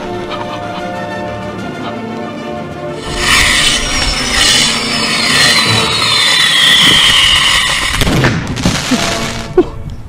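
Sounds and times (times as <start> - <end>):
firework hissing and whistling: 3.0 - 8.1
firework bangs: 6.8 - 9.5.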